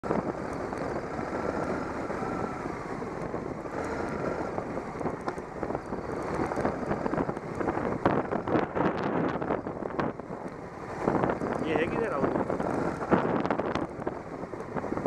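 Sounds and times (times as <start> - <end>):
motorcycle engine: 0.0 - 15.0
wind on microphone: 0.0 - 15.0.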